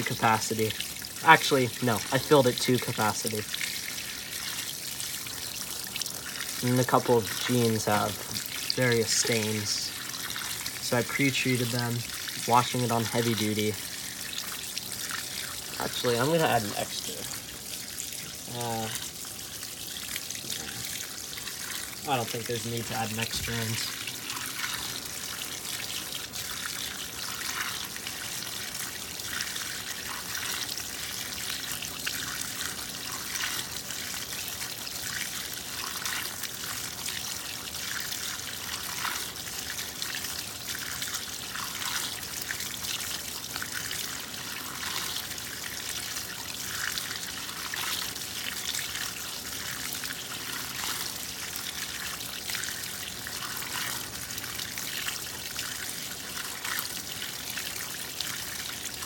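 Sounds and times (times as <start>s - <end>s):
water pouring into washer tub: 0.0s - 59.0s.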